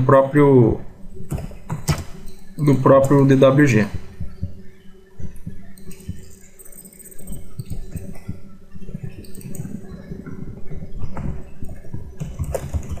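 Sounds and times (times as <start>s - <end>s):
low electrical hum: 0.0s - 13.0s
computer mouse clicks: 5.3s - 10.1s.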